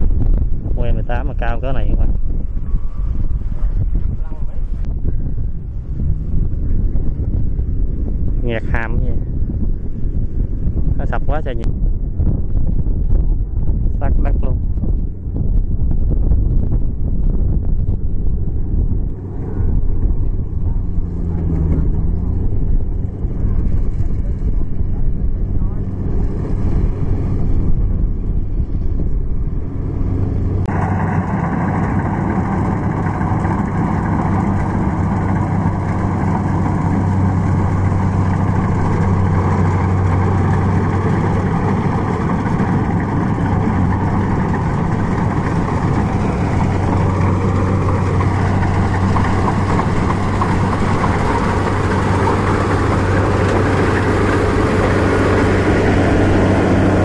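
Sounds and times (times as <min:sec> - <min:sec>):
combine harvester engine droning: 0:16.9 - 0:57.0.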